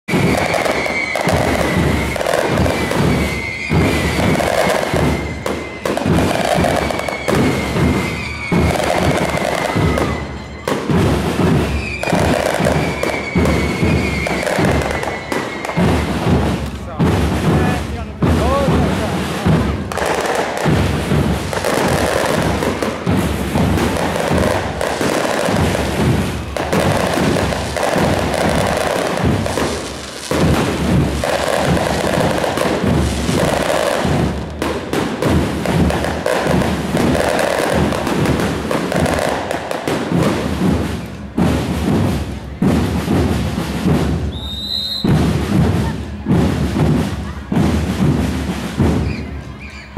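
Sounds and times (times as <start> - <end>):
fireworks bangs and crackles: 0.0 - 49.9
high firework whistle: 0.1 - 16.8, 18.7 - 46.3, 48.7 - 49.9.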